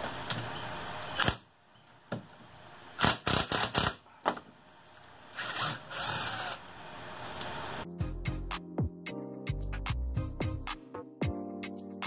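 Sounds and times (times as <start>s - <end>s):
cordless drill running: 5.4s - 7.8s.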